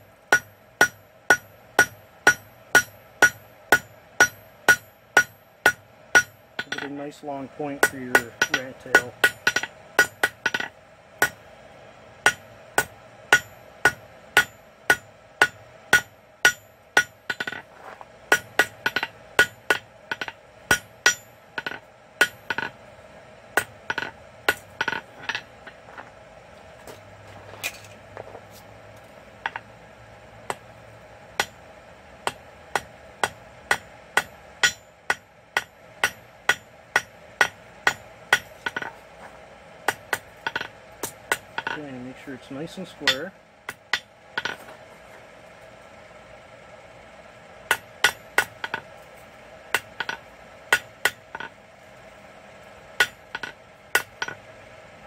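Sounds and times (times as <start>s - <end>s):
steady hum: 0.0s - 55.0s
hammer striking steel on anvil: 0.3s - 11.4s, 12.2s - 17.7s, 18.3s - 22.8s, 23.6s - 25.8s, 31.4s - 31.6s, 32.2s - 38.9s, 39.9s - 42.0s, 43.0s - 44.7s, 47.7s - 48.9s, 49.7s - 51.5s, 53.0s - 54.4s.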